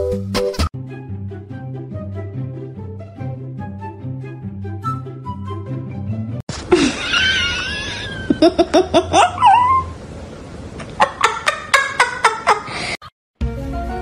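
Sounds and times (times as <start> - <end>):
background music: 0.0 - 6.4, 13.4 - 14.0.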